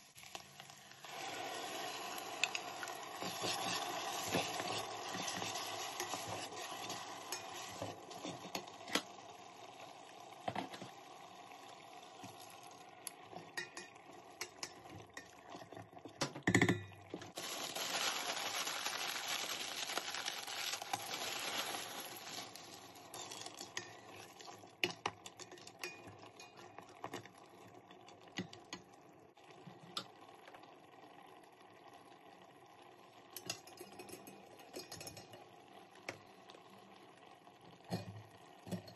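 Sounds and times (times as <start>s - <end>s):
vegetables poured into pot: 0.0s - 9.2s, 17.2s - 24.8s
food sizzling: 0.0s - 38.9s
spoon stirring in metal pot: 1.6s - 9.1s, 13.1s - 17.3s, 22.4s - 28.9s
metal clinking on pot: 2.4s - 9.1s, 13.3s - 17.0s, 23.1s - 27.3s, 33.4s - 35.4s.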